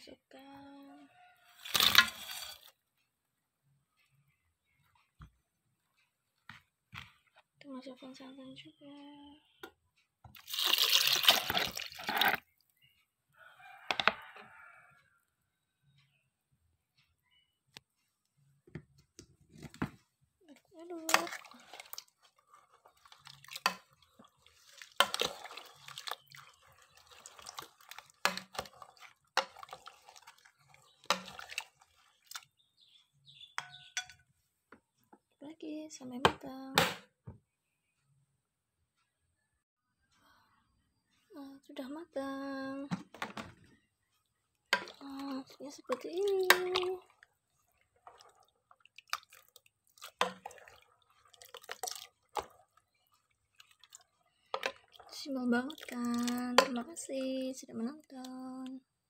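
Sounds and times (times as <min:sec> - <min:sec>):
spoon stirring porridge sloshing: 0:01.2 - 0:02.9, 0:09.6 - 0:12.9, 0:17.8 - 0:34.3, 0:42.9 - 0:58.8.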